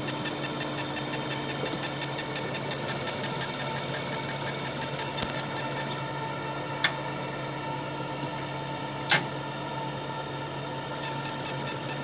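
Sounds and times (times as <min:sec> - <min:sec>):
rapid ticking of rotary axis: 0:00.0 - 0:05.6
sharp machine clicks: 0:00.0 - 0:05.8, 0:11.0 - 0:12.0
laser engraver humming: 0:00.0 - 0:12.0.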